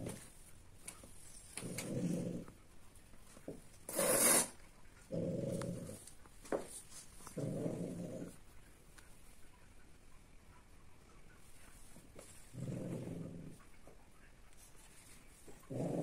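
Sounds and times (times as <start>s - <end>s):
cat hissing: 3.9s - 4.6s.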